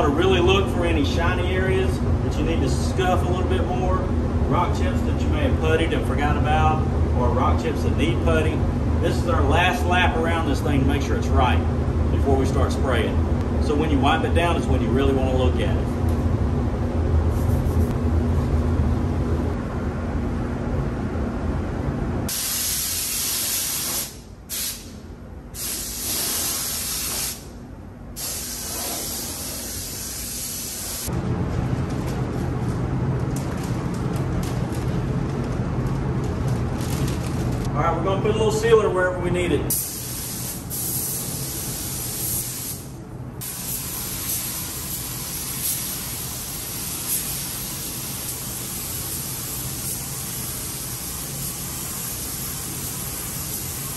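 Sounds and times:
low steady rumble: 0.0s - 22.3s, 31.1s - 40.3s
steady low hum: 0.0s - 53.9s
compressed air hissing from nozzle: 22.3s - 25.0s, 25.6s - 27.5s, 28.2s - 31.1s, 39.7s - 53.9s.

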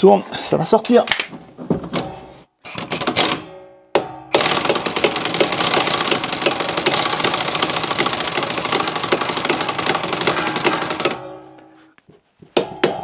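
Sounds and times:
pneumatic impact wrench rattling: 4.3s - 11.2s.

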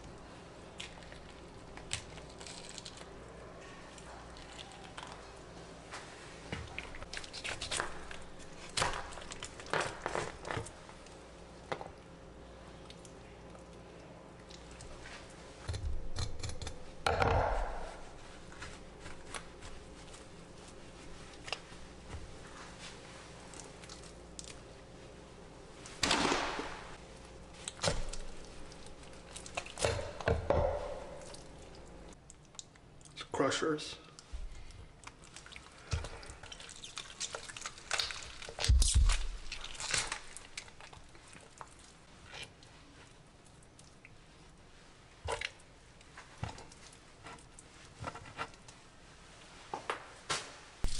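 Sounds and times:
raw fish tearing and squelching: 0.8s - 3.2s, 35.0s - 42.5s.

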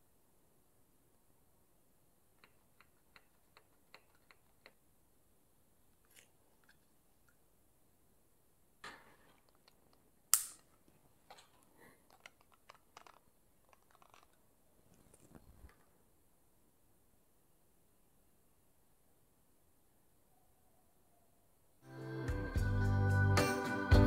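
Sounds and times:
sharp click: 10.3s - 10.7s.

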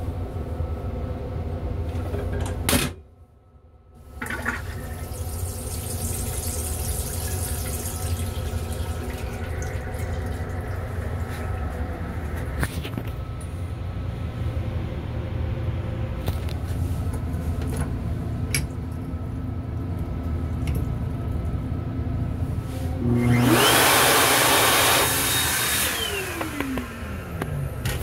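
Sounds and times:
sink faucet running: 4.2s - 12.4s
electric water pump whine: 4.2s - 16.7s, 22.9s - 28.0s.

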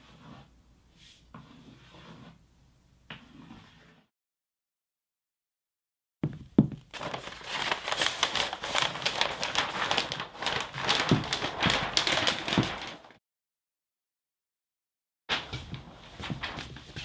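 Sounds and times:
pencil scratching on paper: 0.0s - 2.4s, 3.1s - 4.1s.

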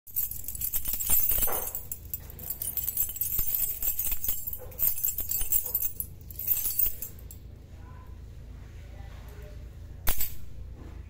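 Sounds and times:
metal keys jingling: 0.1s - 7.4s.

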